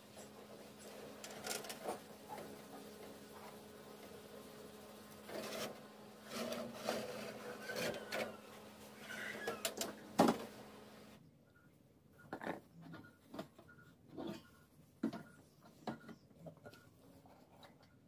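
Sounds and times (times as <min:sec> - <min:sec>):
cake tin scraping on metal racks: 0:00.8 - 0:03.5, 0:05.2 - 0:10.0.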